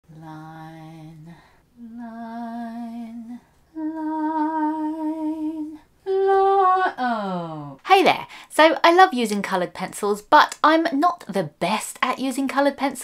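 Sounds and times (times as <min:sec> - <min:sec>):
person humming: 0:00.1 - 0:07.8.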